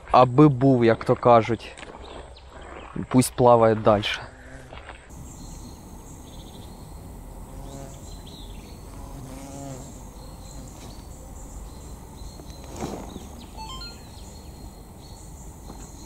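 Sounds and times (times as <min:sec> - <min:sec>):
crickets chirping: 0:05.1 - 0:16.0.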